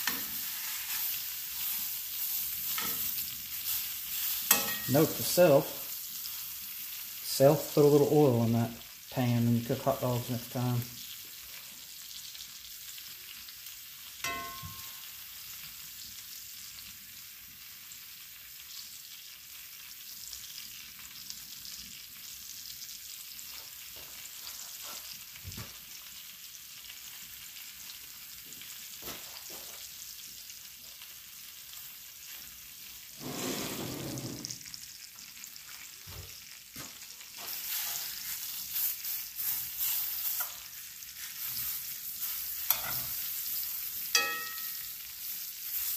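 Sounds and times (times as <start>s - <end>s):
tongs clinking on skillet: 0.0s - 6.4s, 14.2s - 15.3s, 37.4s - 45.9s
steaks sizzling in a skillet: 0.0s - 45.9s.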